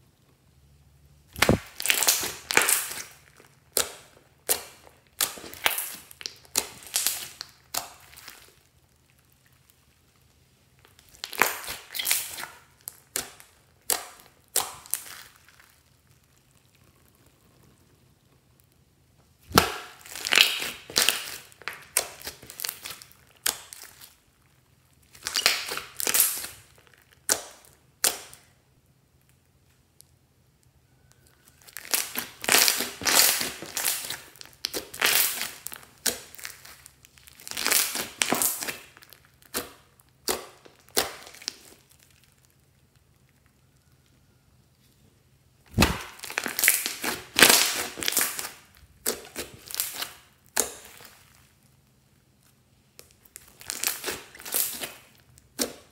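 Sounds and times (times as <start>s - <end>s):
slime crackling and popping: 1.3s - 44.9s, 45.6s - 55.9s.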